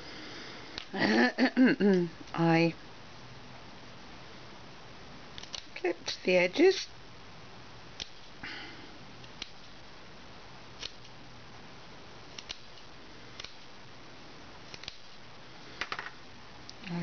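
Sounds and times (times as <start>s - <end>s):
scissors snipping fabric: 5.4s - 5.8s, 8.0s - 8.3s, 10.8s - 11.1s, 12.3s - 13.7s, 14.7s - 15.1s.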